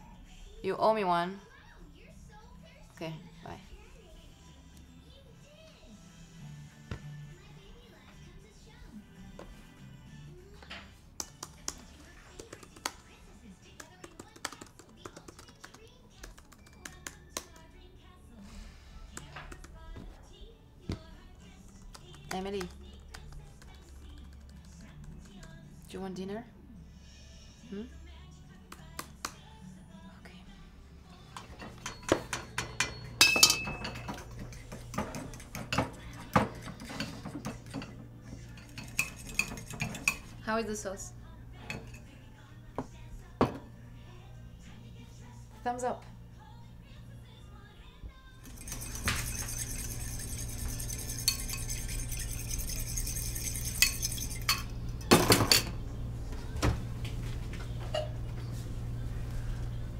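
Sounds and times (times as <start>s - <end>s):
low steady hum: 17.9s - 59.9s
dishes clattering: 31.3s - 40.4s, 48.5s - 55.8s
metal spoon scraping ceramic bowl: 38.5s - 40.3s, 48.5s - 54.7s.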